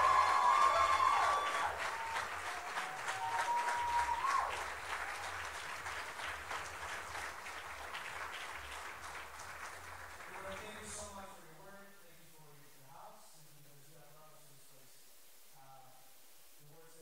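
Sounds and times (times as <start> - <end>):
high held cheer: 0.0 - 6.8
congregation applauding: 0.0 - 11.2.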